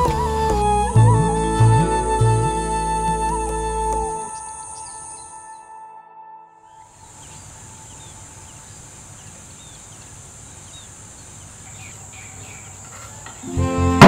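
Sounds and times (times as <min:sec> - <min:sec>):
insect drone: 0:04.0 - 0:05.5, 0:06.7 - 0:14.0
bird chirps: 0:04.2 - 0:05.8, 0:06.6 - 0:13.5.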